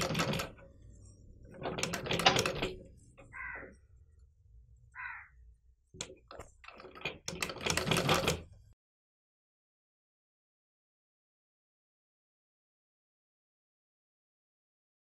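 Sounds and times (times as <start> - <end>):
sewing machine stitching: 0.0 - 3.3, 6.0 - 8.7.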